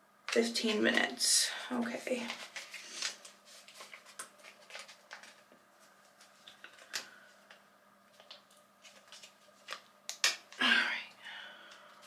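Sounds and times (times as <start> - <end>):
small objects clicking and tapping: 9.7 - 10.6.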